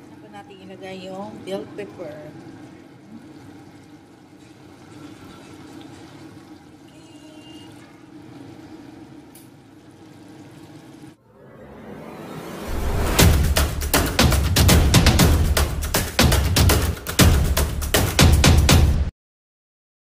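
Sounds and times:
sauce bubbling in a wok: 0:02.1 - 0:11.2.

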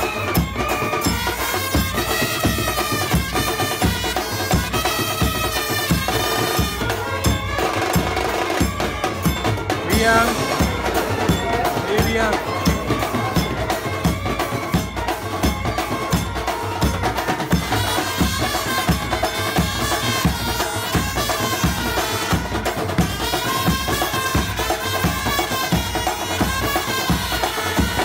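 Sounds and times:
steady drum beat: 0:00.0 - 0:28.0
wavering melody: 0:04.1 - 0:23.4.

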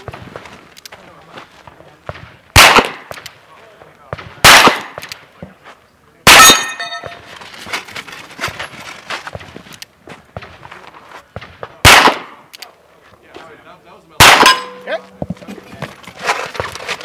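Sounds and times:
steel target ringing: 0:06.3 - 0:07.3, 0:14.2 - 0:15.2.

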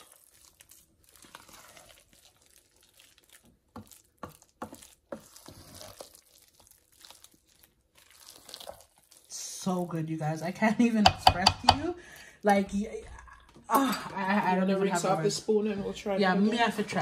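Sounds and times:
spoon stirring wet potato salad: 0:00.0 - 0:09.4, 0:10.9 - 0:13.6
spoon clicking on pot: 0:11.0 - 0:11.8.

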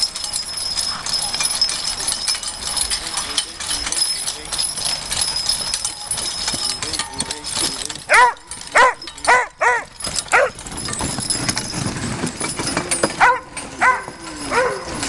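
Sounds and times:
dog barking: 0:08.1 - 0:10.6, 0:13.2 - 0:15.0.

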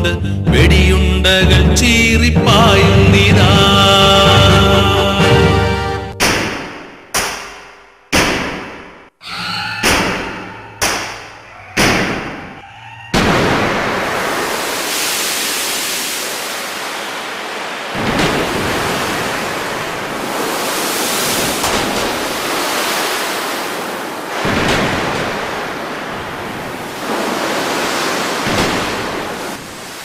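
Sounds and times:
loud steady rushing noise: 0:13.2 - 0:30.0.

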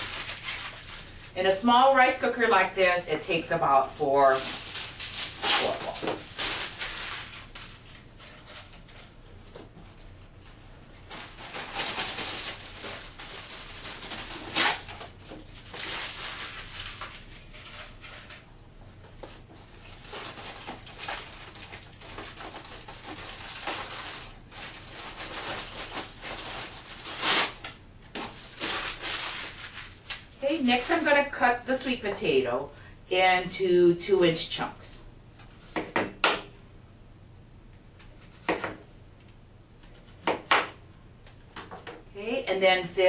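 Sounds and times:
aluminium foil crumpling: 0:00.0 - 0:01.6, 0:03.2 - 0:18.5, 0:19.1 - 0:31.4.

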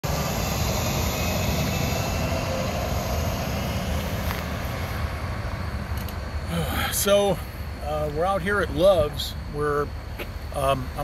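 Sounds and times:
semi truck driving past: 0:00.0 - 0:08.1.

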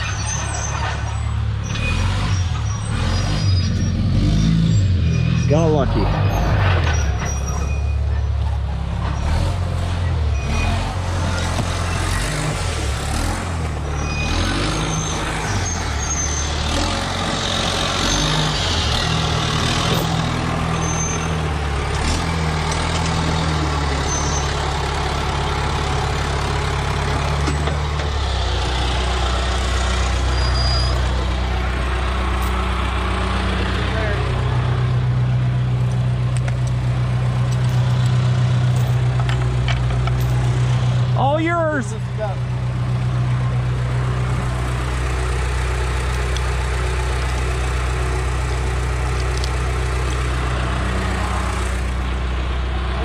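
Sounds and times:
bulldozer diesel engine running: 0:00.0 - 0:53.0.

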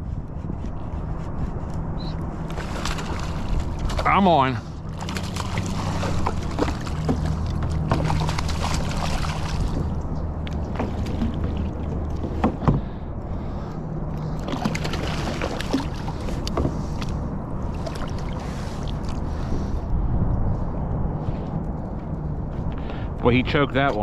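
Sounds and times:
steady low hum: 0:00.0 - 0:24.0
fish thrashing and splashing: 0:02.5 - 0:10.0, 0:14.2 - 0:19.3.

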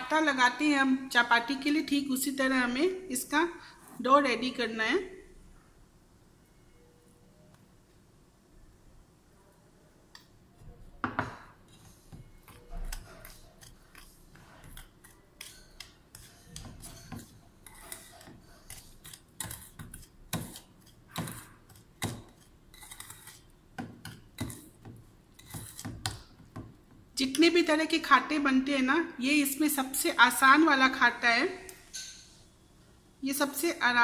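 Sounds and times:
spoon scraping steel plate: 0:11.6 - 0:26.1.

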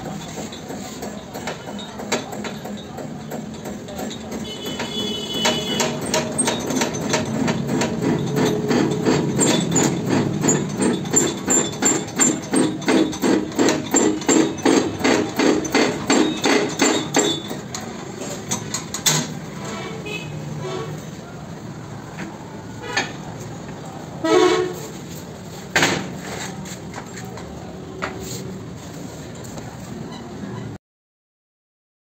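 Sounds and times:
pump lever clanking and creaking: 0:00.0 - 0:20.0.

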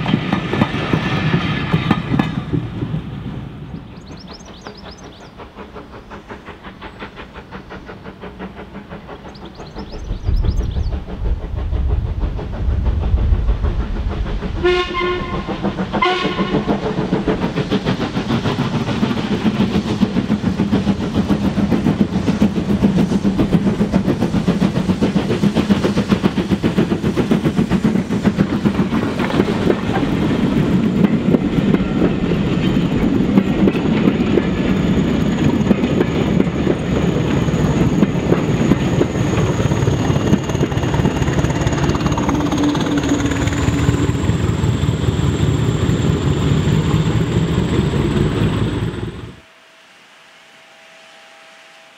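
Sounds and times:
diesel locomotive passing: 0:00.0 - 0:51.9
train rumbling: 0:00.0 - 0:51.9
steam whistle blasts: 0:14.6 - 0:16.7, 0:49.4 - 0:51.9.

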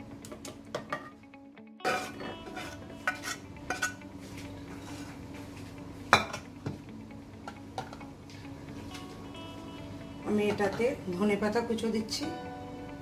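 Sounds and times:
metal spatula scraping steel pan: 0:01.8 - 0:04.0.

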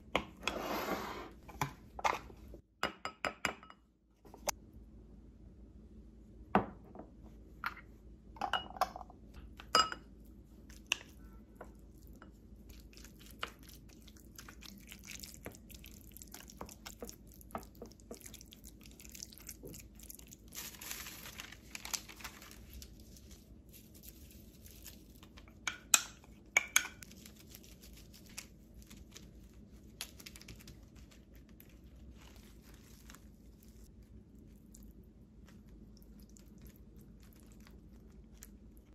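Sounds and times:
spoon clinking on glass bowl: 0:09.7 - 0:10.1.

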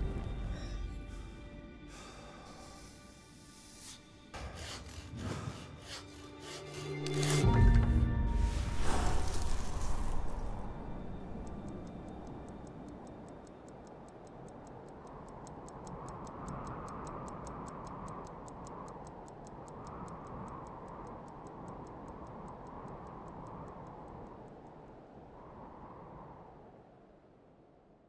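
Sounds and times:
rushing background noise: 0:00.0 - 0:25.3
watch ticking: 0:10.4 - 0:25.1.

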